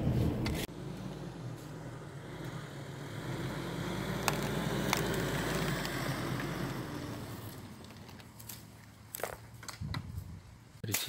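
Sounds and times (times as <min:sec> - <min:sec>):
car engine driving past: 0:00.1 - 0:08.1.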